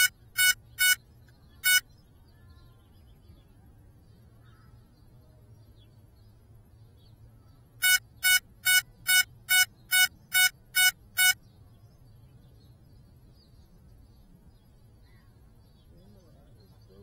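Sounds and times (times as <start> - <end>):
short electronic beeps: 0.0 - 1.0, 1.6 - 1.8, 7.8 - 11.4.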